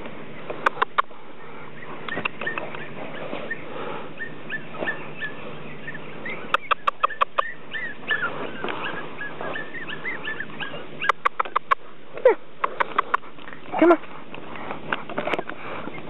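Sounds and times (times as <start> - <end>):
puppy whimpering: 2.1 - 12.4
sharp clicks: 11.0 - 11.8.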